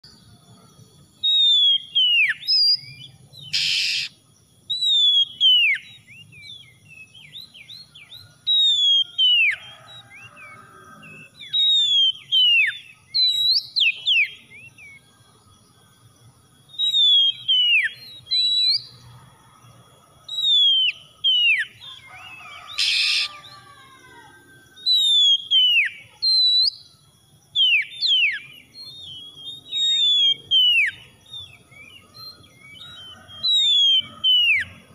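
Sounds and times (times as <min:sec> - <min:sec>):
bird whistling song: 0:00.0 - 0:15.2, 0:16.5 - 0:19.2, 0:20.2 - 0:23.8, 0:24.7 - 0:34.9
harsh bird notes: 0:03.5 - 0:04.1.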